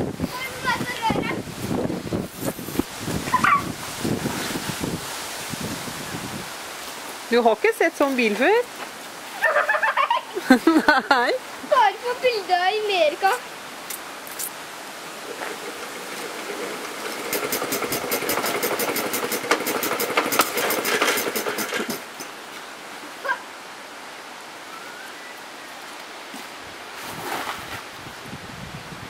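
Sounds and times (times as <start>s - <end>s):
small engine popping: 15.2s - 22.3s.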